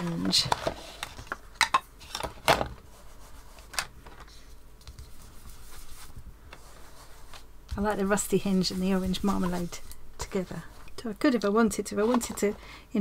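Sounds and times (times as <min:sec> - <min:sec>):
brush scrubbing on card: 0:05.0 - 0:07.4, 0:08.4 - 0:09.9.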